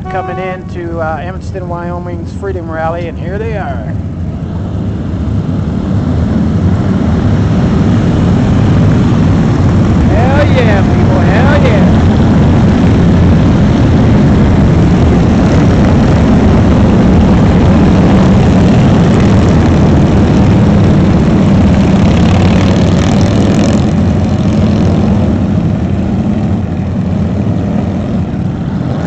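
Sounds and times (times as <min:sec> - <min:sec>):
motorcycles rumbling past: 0:04.9 - 0:29.0.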